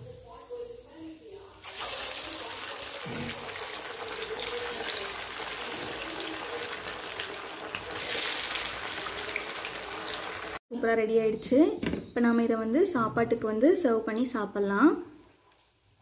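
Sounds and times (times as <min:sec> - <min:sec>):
fish deep-frying in hot oil: 0:01.6 - 0:10.6.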